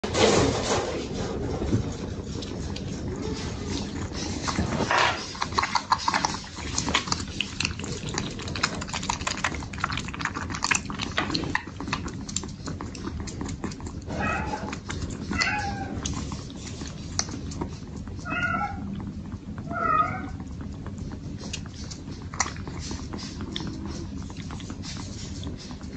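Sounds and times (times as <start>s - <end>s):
kittens suckling and lapping: 0.0s - 25.9s
high kitten mews: 14.1s - 14.6s.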